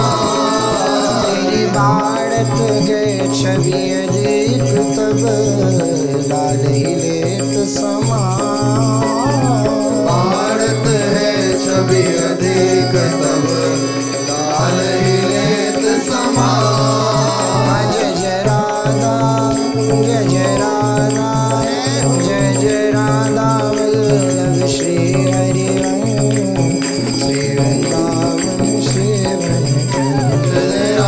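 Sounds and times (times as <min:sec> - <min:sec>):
light percussion: 0:00.0 - 0:31.0
gliding melody line: 0:08.2 - 0:31.0.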